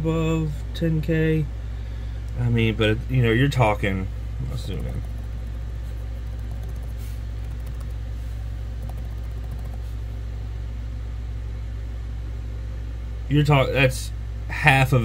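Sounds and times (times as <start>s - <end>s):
steady low rumble: 4.0s - 10.2s.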